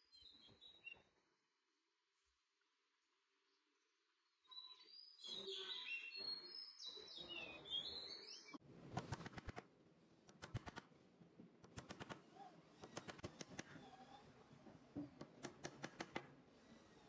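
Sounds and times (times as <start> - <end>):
wooden clicks and taps: 15.0 - 16.4.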